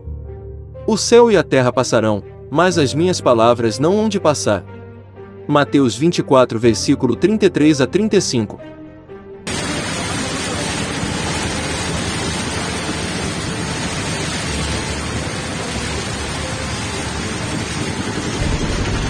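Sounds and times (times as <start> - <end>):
heavy rain and floodwater rushing: 9.5 - 19.0.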